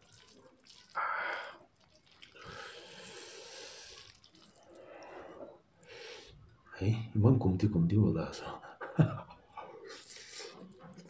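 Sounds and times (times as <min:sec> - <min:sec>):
wet squishing of stirred noodles: 0:00.0 - 0:06.7, 0:09.7 - 0:11.0.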